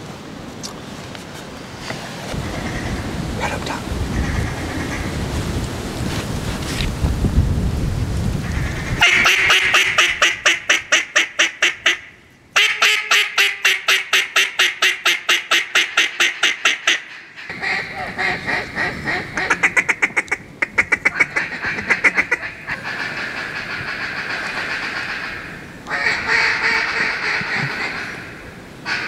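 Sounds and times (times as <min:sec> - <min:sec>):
duck call quacking: 0:09.0 - 0:29.0.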